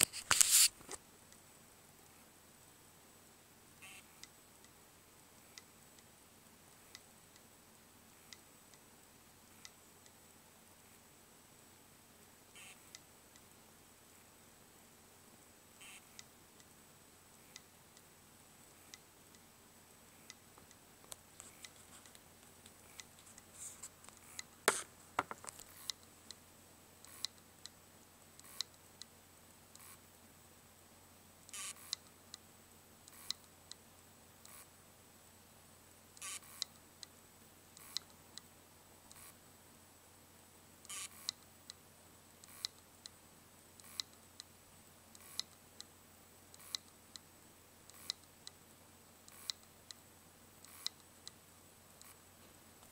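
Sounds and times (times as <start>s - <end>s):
short scraping noises: 0.0s - 1.0s, 24.7s - 25.0s
hard drive clicking faintly: 3.7s - 30.3s, 31.4s - 34.8s, 36.0s - 39.5s, 40.7s - 52.9s
hard drive clicking: 20.2s - 26.4s.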